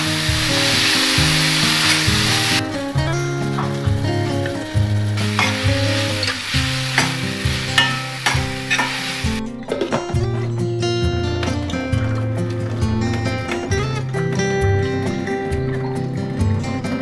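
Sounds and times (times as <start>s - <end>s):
vegetables sizzling in a frying pan: 0.0s - 9.4s
background music: 0.0s - 17.0s
ladle scraping a pan: 3.5s - 9.4s.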